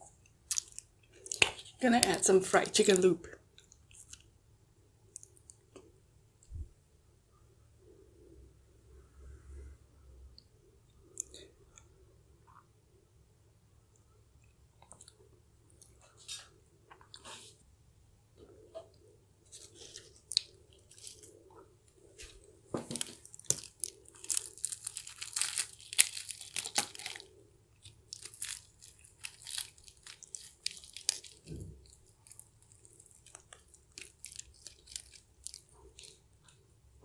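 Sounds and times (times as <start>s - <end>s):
crunchy chewing: 19.5s - 36.3s
fried chicken tearing: 23.0s - 36.2s.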